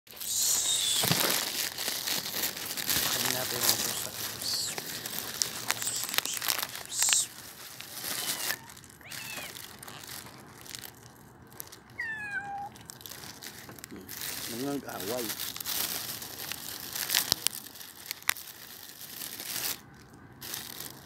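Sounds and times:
plastic bag crinkling: 0.1 - 21.0
kitten meowing: 0.2 - 1.2, 5.5 - 7.3, 8.0 - 10.1, 12.0 - 12.8.

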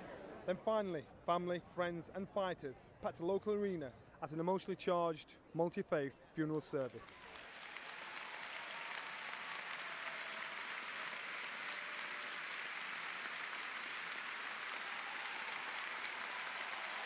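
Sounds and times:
crowd applauding: 6.8 - 17.0.

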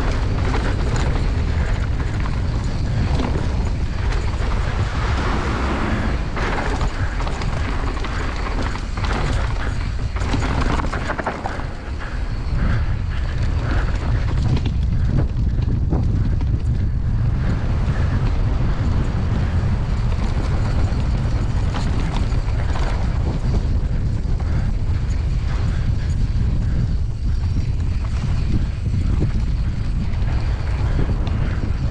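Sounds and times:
bike rattling and knocking: 0.0 - 31.9
tyres running over dirt: 0.0 - 31.9
wind buffeting microphone: 0.0 - 31.9.

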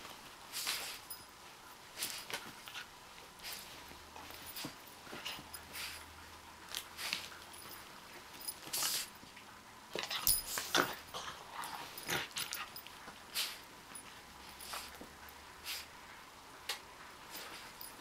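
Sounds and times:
dog sniffing: 2.0 - 6.1, 6.7 - 7.8, 8.6 - 9.2, 10.0 - 16.0.

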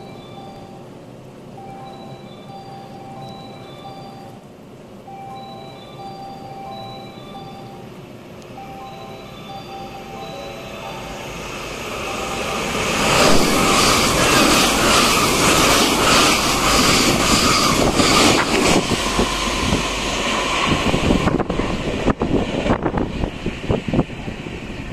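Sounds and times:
train passing at speed: 0.0 - 24.9
wind buffeting microphone: 12.4 - 24.9.

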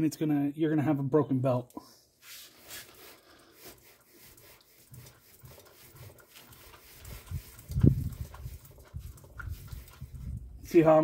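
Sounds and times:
rubbing against microphone: 2.2 - 10.5.

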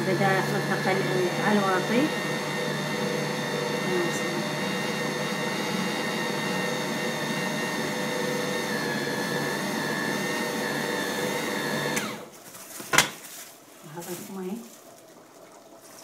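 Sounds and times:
food processor motor running: 0.0 - 12.3.

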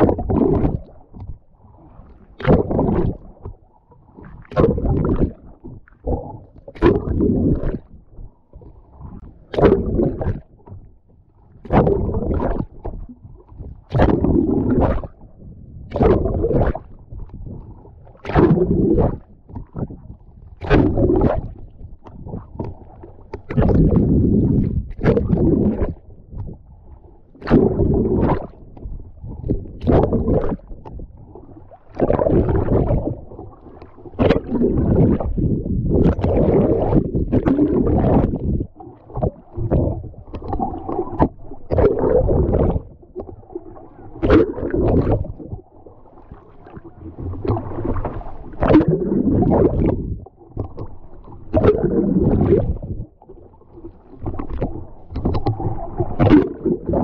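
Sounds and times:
muffled underwater gurgling: 0.0 - 57.0
water sloshing and splashing: 0.0 - 57.0.

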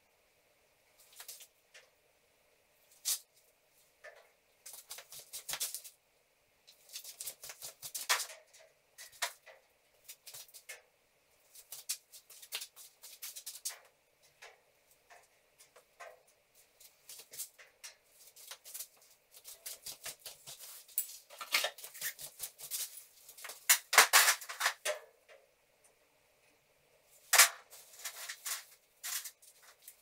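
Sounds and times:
metal studs rustling and scuffing: 27.3 - 30.0.

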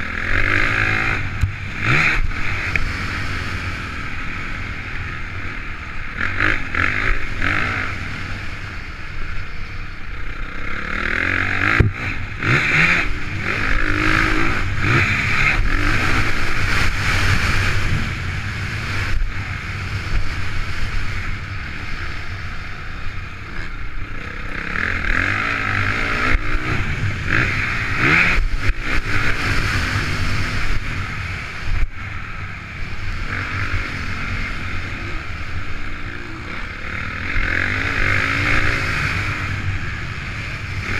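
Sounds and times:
motocross bike engine revving: 0.0 - 40.9.

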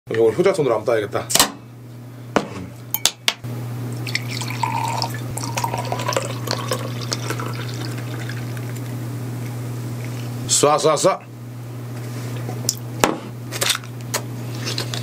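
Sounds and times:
beer pouring and fizzing: 3.9 - 8.9.

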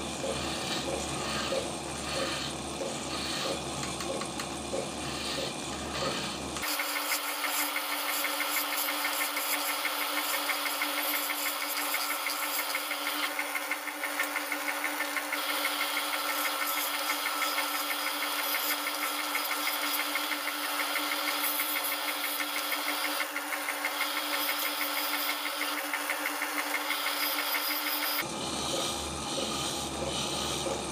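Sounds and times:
wood lathe humming: 0.0 - 30.9.

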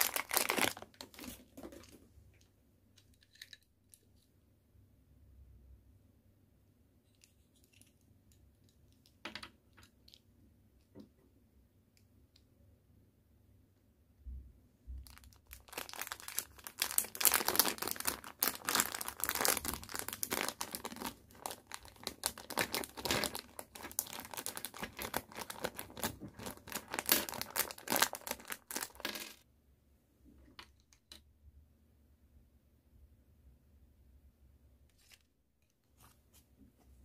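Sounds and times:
plastic bag crinkling: 0.0 - 2.0, 15.1 - 29.4.

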